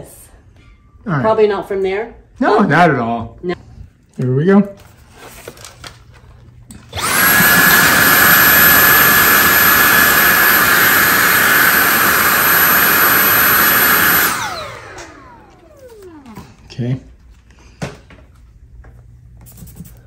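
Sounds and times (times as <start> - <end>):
handheld vacuum whining: 6.8 - 16.7.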